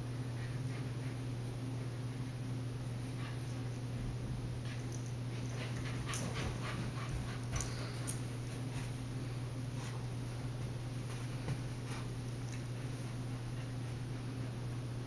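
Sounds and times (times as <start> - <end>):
puppy panting: 4.8 - 8.2.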